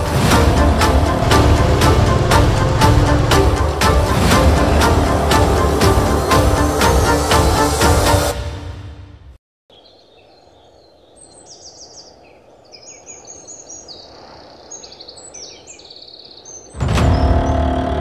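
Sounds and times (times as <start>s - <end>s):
birds chirping and trilling: 0.0s - 7.8s, 9.7s - 18.0s
low outdoor background noise: 9.7s - 16.8s.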